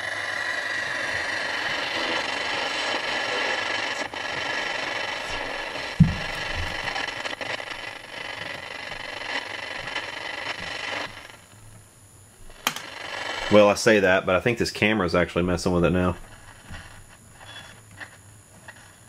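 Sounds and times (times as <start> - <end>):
radio static hiss: 0.0 - 19.0
low thump: 6.0 - 6.8.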